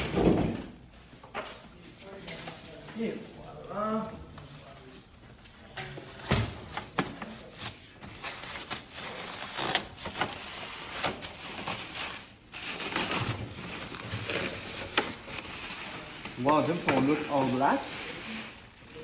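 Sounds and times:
plastic wrapping crinkling: 7.2 - 19.0.

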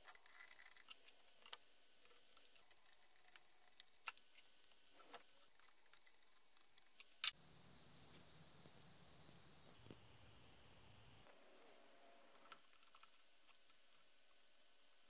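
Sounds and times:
small plastic parts clicking: 0.0 - 7.4.

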